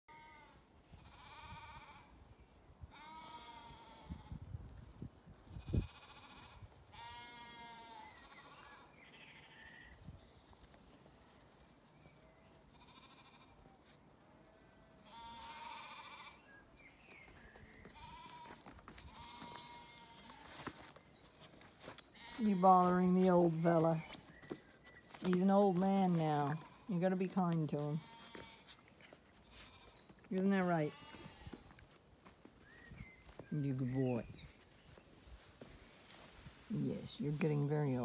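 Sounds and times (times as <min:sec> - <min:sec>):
sheep bleating: 0:00.1 - 0:02.1, 0:02.9 - 0:04.3, 0:05.6 - 0:09.9, 0:12.7 - 0:13.7, 0:14.4 - 0:16.5, 0:17.9 - 0:20.6, 0:22.2 - 0:22.9, 0:27.8 - 0:28.8, 0:29.6 - 0:31.8.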